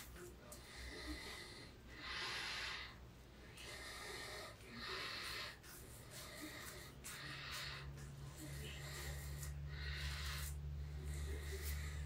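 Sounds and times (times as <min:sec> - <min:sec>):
razor scraping stubble: 0:03.7 - 0:12.0.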